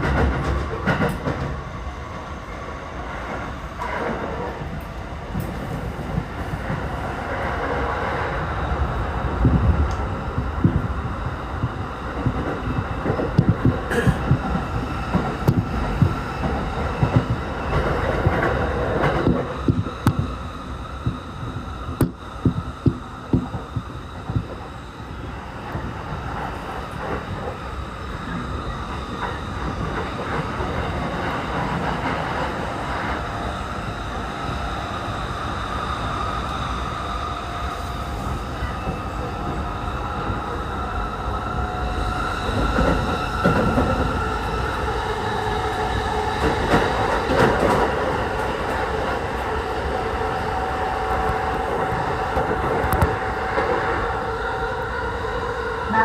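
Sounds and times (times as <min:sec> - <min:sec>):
train wheels clacking on track: 0:00.0 - 0:01.6, 0:09.3 - 0:24.9, 0:25.6 - 0:33.5, 0:41.6 - 0:54.2
faint train whine: 0:00.0 - 0:56.0
train rolling rumble: 0:00.0 - 0:56.0.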